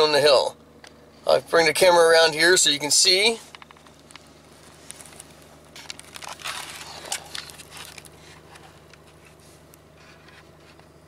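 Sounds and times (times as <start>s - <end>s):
truck engine idling: 0.0s - 11.0s
camera handling rustling and clicking: 3.5s - 9.4s.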